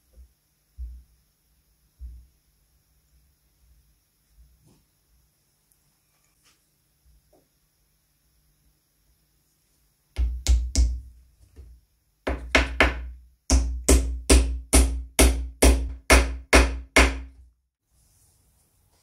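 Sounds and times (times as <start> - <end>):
hammer tapping wood: 12.3 - 17.3.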